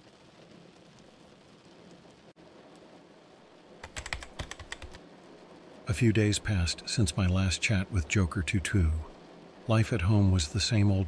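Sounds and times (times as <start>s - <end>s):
heavy rain on a car: 0.0s - 11.0s
fast keyboard typing: 3.8s - 5.0s.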